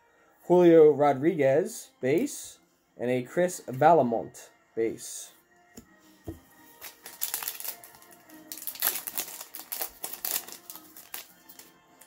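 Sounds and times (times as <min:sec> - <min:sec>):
foil wrapper tearing and crinkling: 0:06.8 - 0:11.7.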